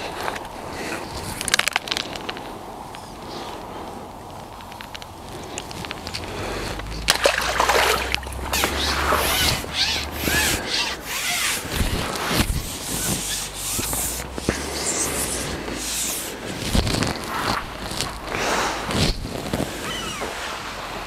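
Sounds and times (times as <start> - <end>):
rubbing and scraping: 5.2 - 21.0
wind rumble on microphone: 7.9 - 21.0.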